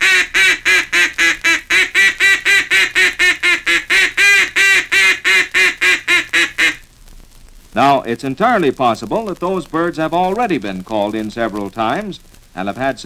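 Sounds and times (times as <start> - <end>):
duck call quacking: 0.0 - 6.8.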